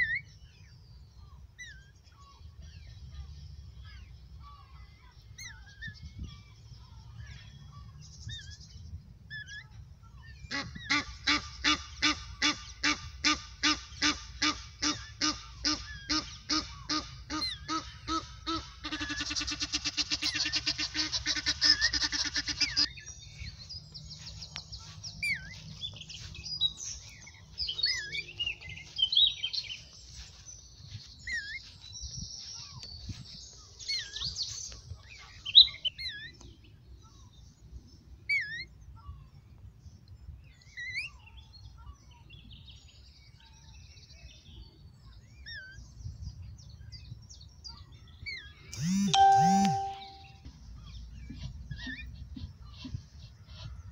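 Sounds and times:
songbirds chirping: 0:00.0 - 0:53.9
goose honking: 0:10.5 - 0:22.9.

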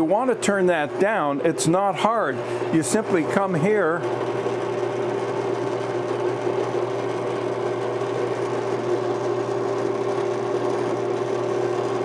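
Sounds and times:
drill press motor hum: 0:00.0 - 0:12.0.

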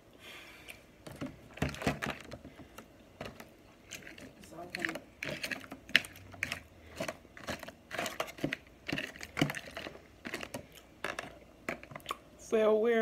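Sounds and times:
crab legs cracking: 0:03.2 - 0:12.2.

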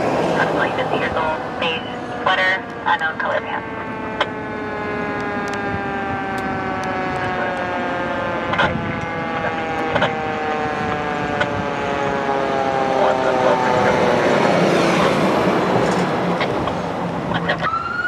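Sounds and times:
fire truck siren wailing: 0:00.0 - 0:18.0
truck engine: 0:00.0 - 0:18.0.

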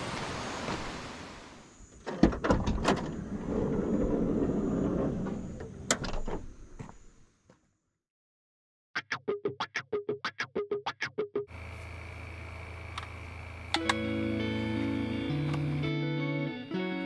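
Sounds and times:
car door latch clicks: 0:13.7 - 0:14.0.

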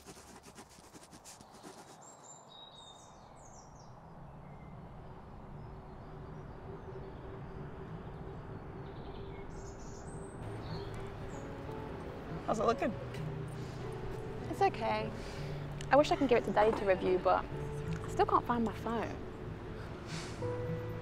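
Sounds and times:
small birds chirping: 0:00.0 - 0:04.8, 0:08.5 - 0:12.0.

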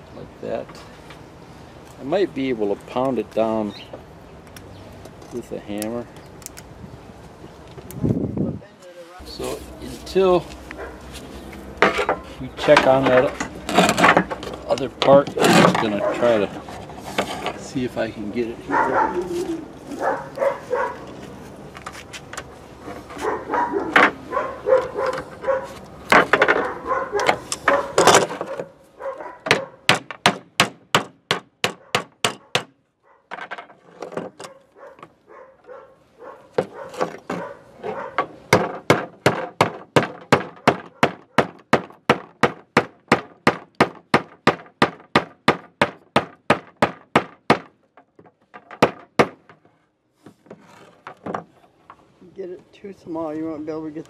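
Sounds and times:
wire and tools clattering: 0:11.8 - 0:17.8, 0:19.3 - 0:28.7.

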